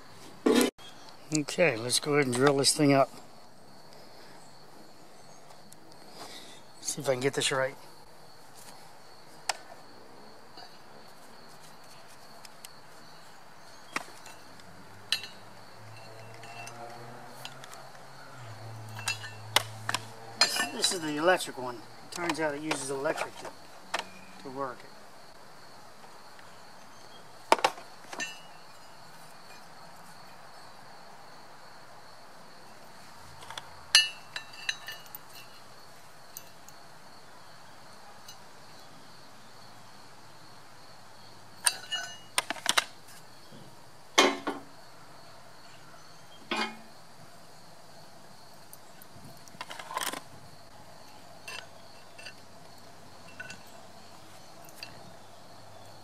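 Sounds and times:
faint high insect trill: 0.1 - 56.0
sharp metal clinks and knocks: 15.1 - 17.8, 18.8 - 21.5, 28.1 - 29.7, 33.4 - 35.7, 41.6 - 43.2, 46.5 - 46.9, 51.1 - 55.2.

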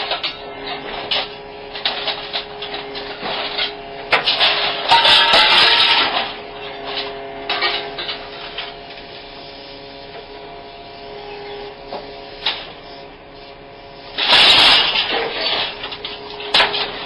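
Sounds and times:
excavator engine humming: 0.0 - 17.0
metal clanking: 1.1 - 8.7, 14.2 - 17.0.

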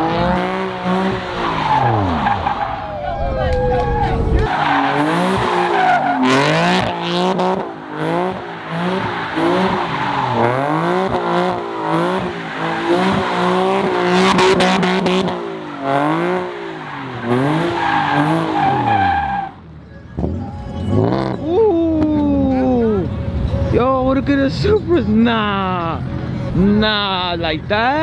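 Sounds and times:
car engine revving: 0.0 - 21.5
tyres squealing on asphalt: 0.6 - 21.4.

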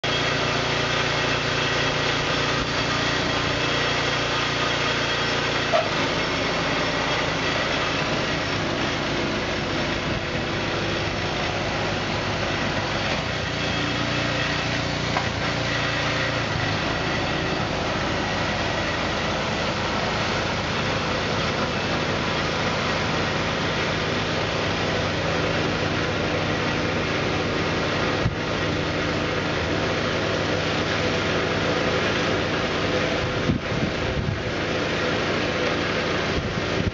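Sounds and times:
snow blower engine running: 0.0 - 36.9.

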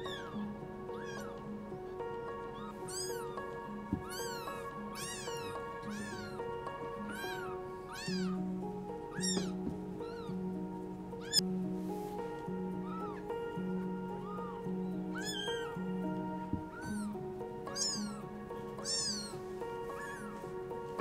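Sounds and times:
background music: 0.0 - 21.0
kitten mewing: 0.9 - 1.3, 2.6 - 3.4, 4.0 - 6.4, 7.1 - 8.4, 9.2 - 10.3, 14.2 - 15.7, 17.7 - 18.2, 18.8 - 19.4.

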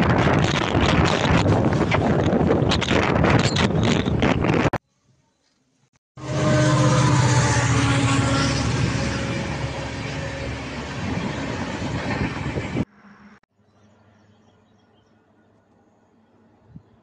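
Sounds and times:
train rushing past on rails: 6.2 - 13.4.

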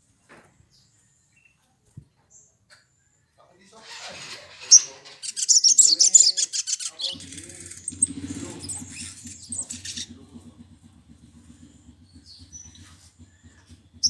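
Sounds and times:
bird singing rapid twittering: 4.6 - 14.0.

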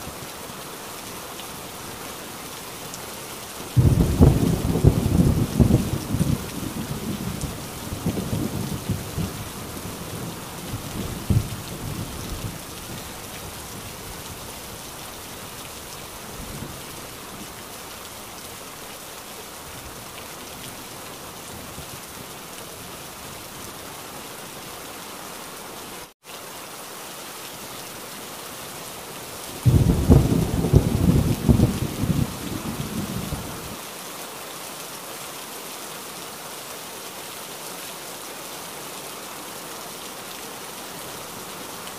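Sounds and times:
heavy rain: 0.0 - 41.9
rolling thunder: 3.8 - 9.6, 29.7 - 33.6.

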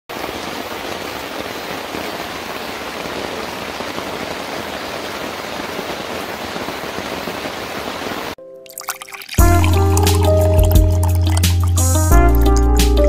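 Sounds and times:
heavy rain: 0.1 - 8.4.

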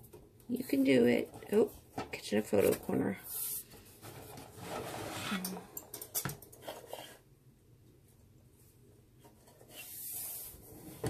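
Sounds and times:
board scraping wooden frame: 4.1 - 5.4.

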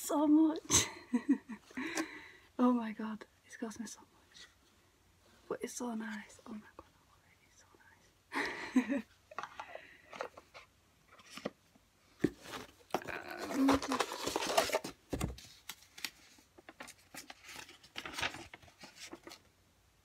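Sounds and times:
paper packaging rustling: 12.2 - 19.5
paper being unfolded: 13.2 - 19.4.

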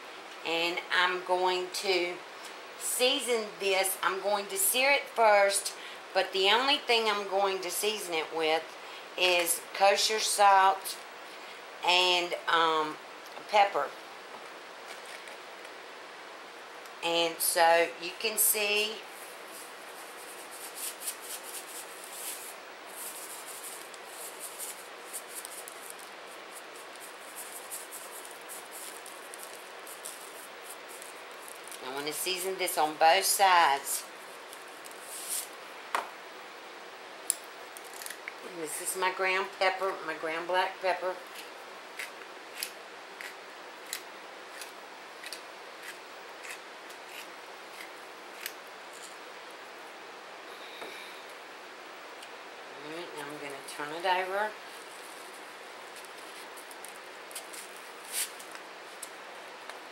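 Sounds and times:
steady hiss: 0.0 - 59.9
pepper mill grinding: 19.6 - 32.7, 41.3 - 49.2
salt shaker rattling: 20.3 - 31.7.

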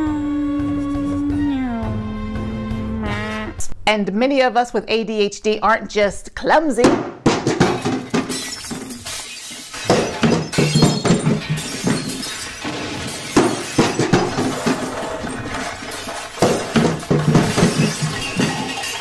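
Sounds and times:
background music: 0.0 - 3.9
glass crashing and shattering: 7.2 - 19.0.

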